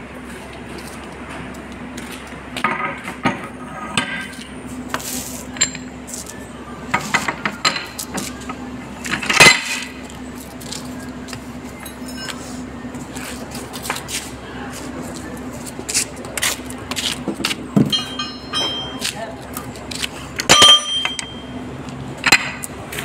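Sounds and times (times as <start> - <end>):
steady low hum: 0.0 - 23.0
steel-on-metal clanks and clinks: 5.5 - 6.2, 6.9 - 8.2, 9.0 - 10.2, 11.8 - 12.6, 17.8 - 19.4, 20.4 - 21.6.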